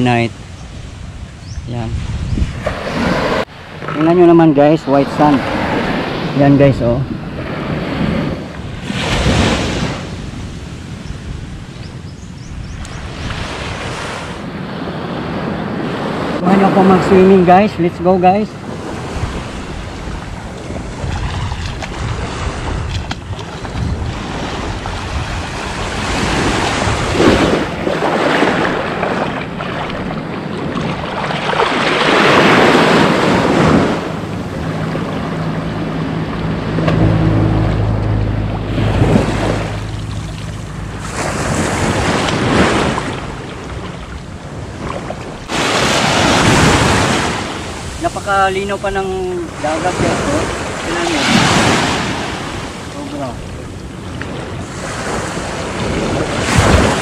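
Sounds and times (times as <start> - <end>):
sea surf splashing: 0.0 - 11.7, 13.0 - 57.0
wind rumbling on microphone: 0.0 - 57.0
low steady hum: 34.1 - 41.3.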